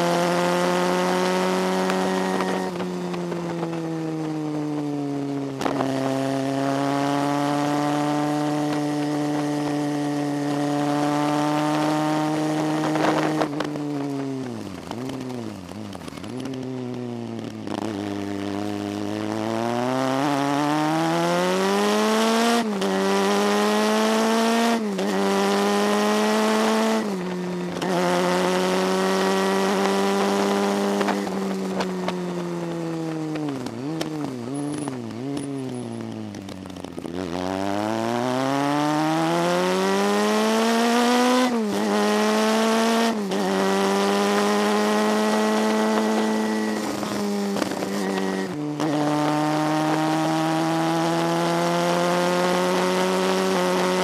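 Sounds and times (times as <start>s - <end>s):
motorcycle engine revving: 0.0s - 54.0s
wind rushing over microphone: 7.6s - 16.6s, 24.2s - 51.4s.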